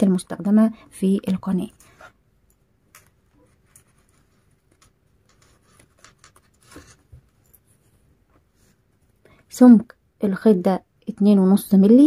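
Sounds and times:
cord rustling and scratching: 0:01.2 - 0:09.2.

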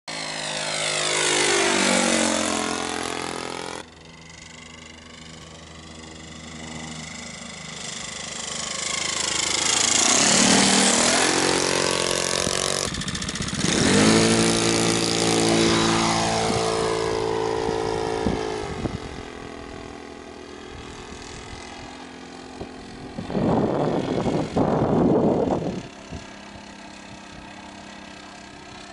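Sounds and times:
model airplane motor and propeller: 0:00.1 - 0:28.9.

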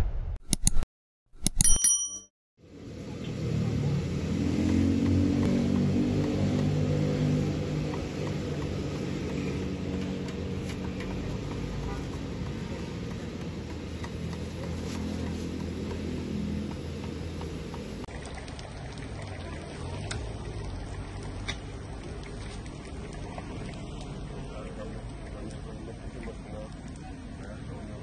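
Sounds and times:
sharp clicks: 0:00.4 - 0:00.8
motorbike and car engines: 0:02.6 - 0:28.0.

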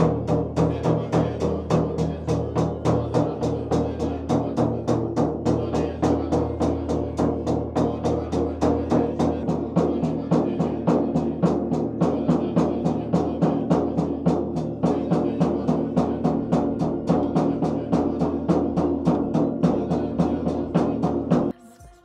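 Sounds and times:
ritual drum beaten fast: 0:00.0 - 0:22.0.

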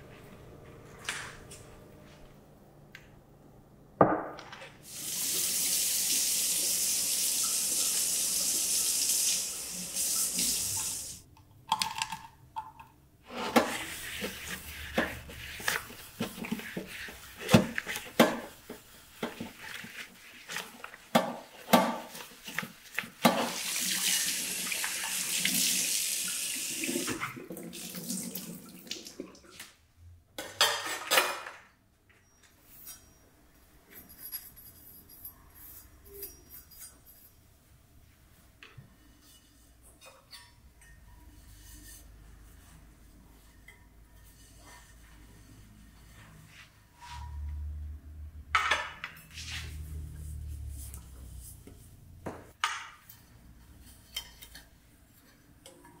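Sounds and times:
cloth scrubbing a metal bowl: 0:13.3 - 0:24.2, 0:41.3 - 0:47.3
dishes clattering: 0:30.4 - 0:31.6.

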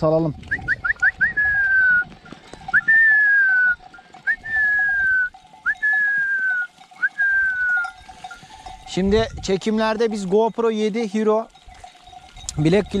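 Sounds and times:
person whistling: 0:00.6 - 0:02.1, 0:02.7 - 0:07.9.

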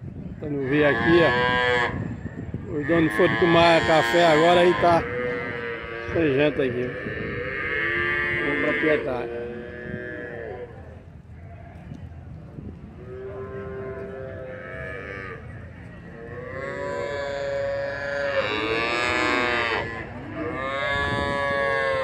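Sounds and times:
cattle mooing: 0:00.6 - 0:02.0, 0:02.8 - 0:10.8, 0:16.2 - 0:22.0.

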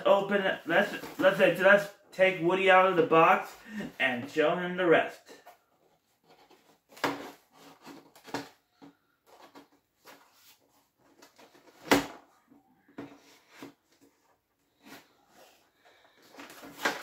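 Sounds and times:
cardboard packaging rustling: 0:13.2 - 0:17.0.

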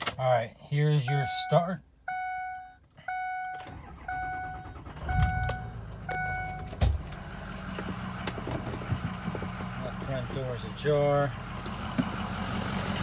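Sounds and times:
diesel engine starting and idling: 0:03.1 - 0:13.0.

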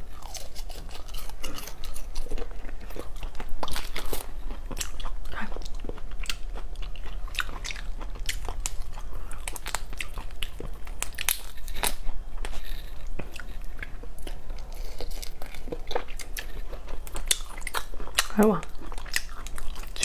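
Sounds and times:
chewing: 0:00.1 - 0:20.0.

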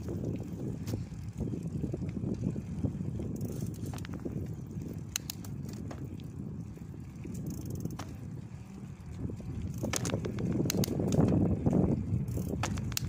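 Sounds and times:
bike tyre rolling on tarmac: 0:00.0 - 0:13.0
sharp clicks and crackles: 0:05.1 - 0:06.0, 0:09.6 - 0:11.4, 0:12.3 - 0:13.0.

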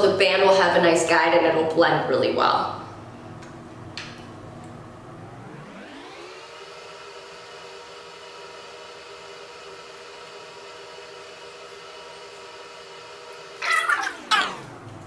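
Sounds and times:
electric whir: 0:03.0 - 0:08.0, 0:13.5 - 0:15.0.

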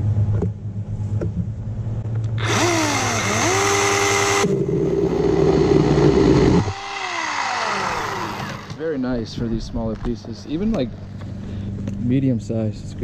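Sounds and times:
chainsaw cutting log: 0:02.4 - 0:08.8
chainsaw motor whine: 0:02.4 - 0:08.9.

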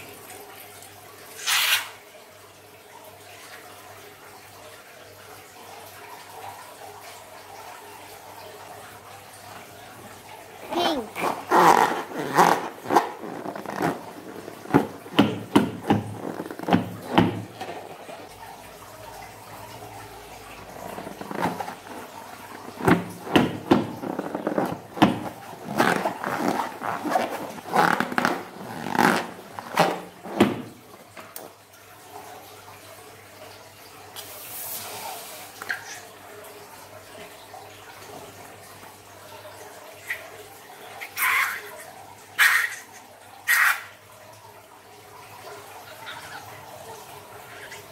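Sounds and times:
hands rubbing squeaky balloon: 0:01.4 - 0:01.9, 0:11.0 - 0:17.5, 0:20.8 - 0:30.7
slime oozing and splashing: 0:10.7 - 0:17.3, 0:20.7 - 0:30.7.

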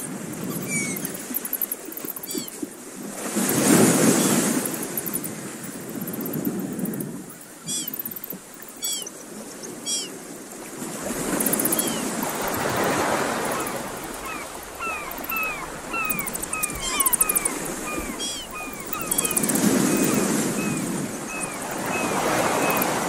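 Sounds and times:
surf washing over rocks: 0:00.0 - 0:07.7, 0:09.4 - 0:23.0
birds whistling calls: 0:00.5 - 0:01.1, 0:08.8 - 0:09.1, 0:13.6 - 0:23.0
bird buzzy trills: 0:13.4 - 0:22.9.

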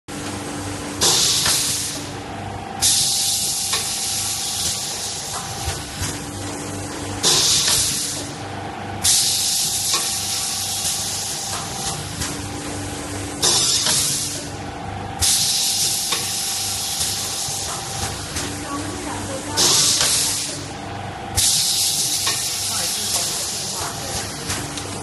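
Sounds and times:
machine hum: 0:00.1 - 0:25.0
pneumatic air hiss bursts: 0:01.0 - 0:02.0, 0:02.8 - 0:05.3, 0:09.0 - 0:11.7, 0:15.2 - 0:17.7, 0:21.4 - 0:23.7.

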